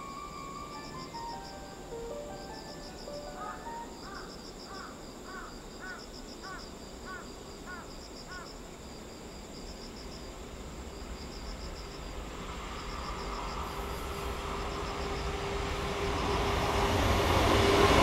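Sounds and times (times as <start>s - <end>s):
freight train rumble and hum: 0.0s - 4.6s, 10.2s - 18.0s
insects chirping: 0.0s - 18.0s.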